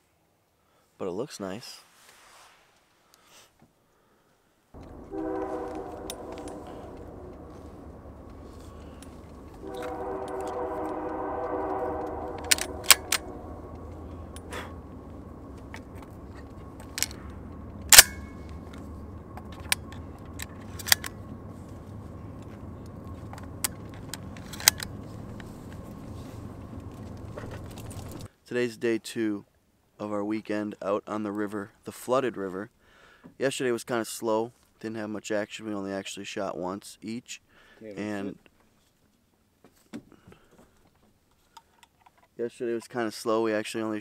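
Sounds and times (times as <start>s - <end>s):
low rumble: 4.8s - 28.3s
train horn blasts: 4.8s - 28.3s
shotgun shells loading clicks: 12.4s - 13.4s, 16.8s - 21.2s, 23.1s - 25.5s.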